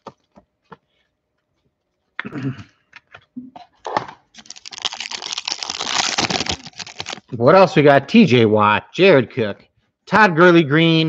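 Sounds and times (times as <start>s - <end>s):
foil wrapper crinkling: 4.3s - 7.4s.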